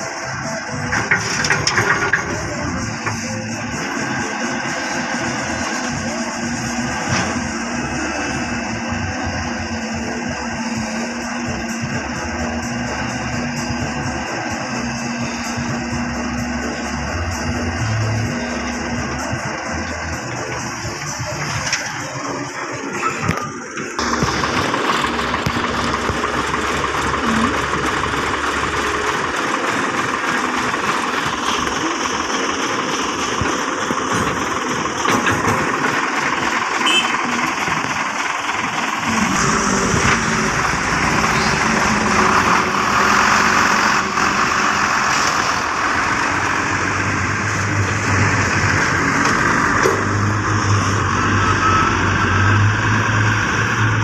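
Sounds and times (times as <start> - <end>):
dump trucks running: 0.0 - 54.0
excavator working: 0.0 - 54.0
deep low hum: 39.0 - 54.0.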